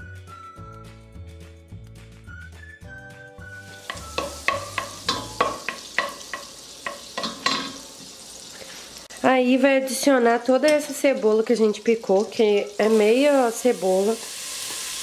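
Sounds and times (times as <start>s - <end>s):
margarine sizzling in a pot: 3.4s - 15.0s
spoon knocking and scraping pot: 3.8s - 8.1s.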